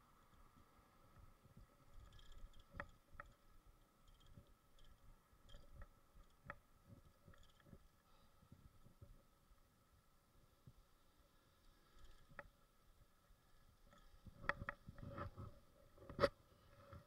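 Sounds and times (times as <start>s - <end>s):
bicycle and camera rattling: 1.6s - 7.9s, 13.9s - 17.0s.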